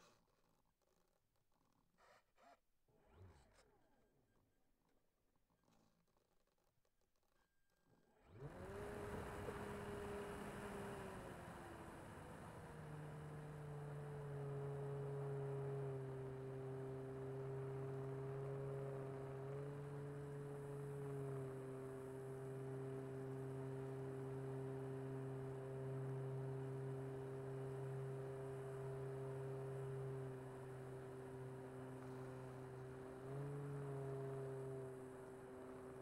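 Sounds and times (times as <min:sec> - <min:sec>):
model plane propeller droning: 0:08.2 - 0:36.0.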